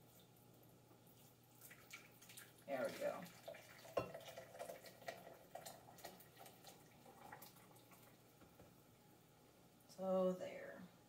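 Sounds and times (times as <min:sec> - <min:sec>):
light glass clink: 0:04.0 - 0:04.2.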